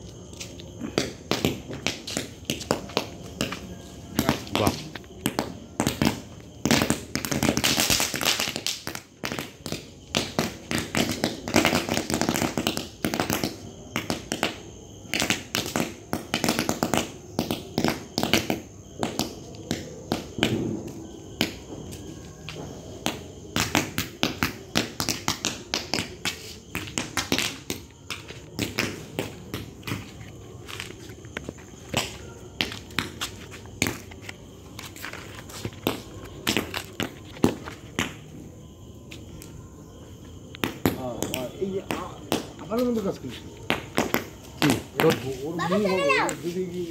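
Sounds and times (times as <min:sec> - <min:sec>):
fireworks crackling and popping: 0:00.0 - 0:38.5, 0:40.4 - 0:46.9
fireworks spraying hiss: 0:05.9 - 0:14.5.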